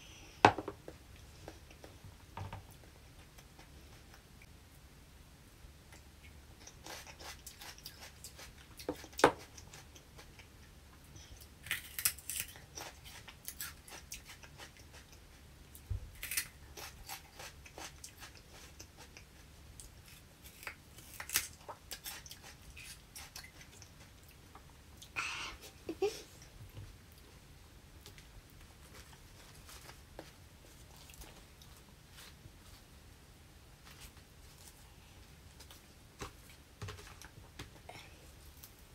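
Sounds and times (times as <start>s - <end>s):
crunching and chewing: 5.9s - 10.7s, 11.3s - 25.2s.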